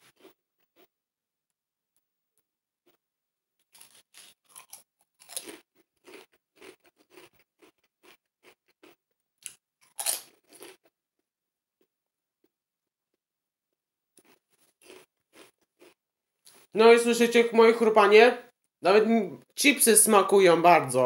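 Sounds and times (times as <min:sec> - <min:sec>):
chewing potato chips crunches: 0:00.0 - 0:00.4, 0:03.6 - 0:10.9, 0:14.2 - 0:16.7.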